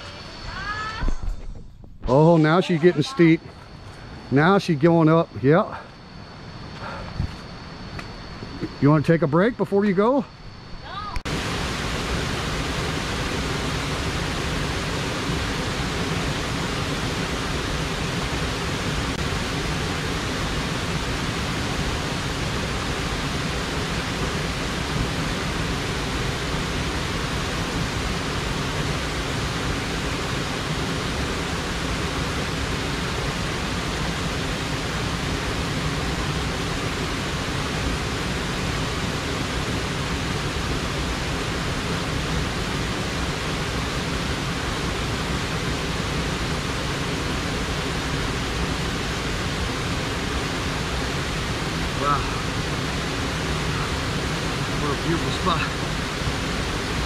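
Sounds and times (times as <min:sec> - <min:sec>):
stream water rushing: 0:11.3 - 0:57.0.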